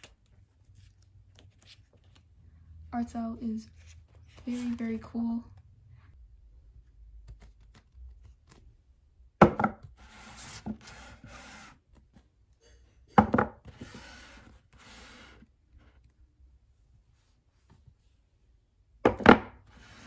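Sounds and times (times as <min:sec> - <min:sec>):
books sliding on shelf: 0:10.0 - 0:11.8, 0:13.6 - 0:15.5, 0:19.7 - 0:20.0.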